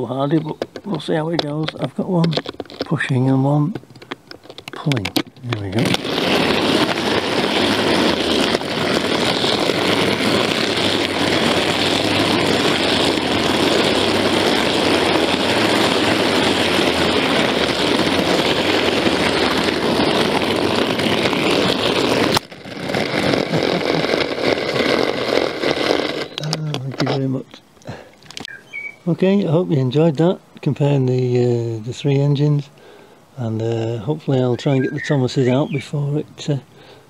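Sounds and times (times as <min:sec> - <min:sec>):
clockwork toy train whirring: 0:05.6 - 0:26.7.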